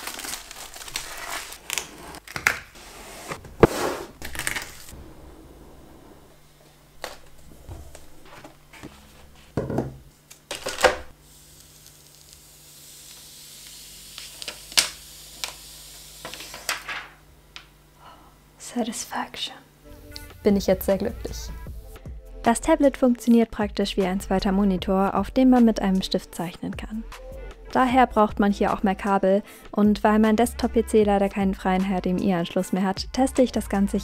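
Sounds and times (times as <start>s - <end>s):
plastic wrap rustling and tearing: 0.0s - 5.0s, 10.2s - 12.6s, 14.0s - 15.6s, 16.2s - 17.1s.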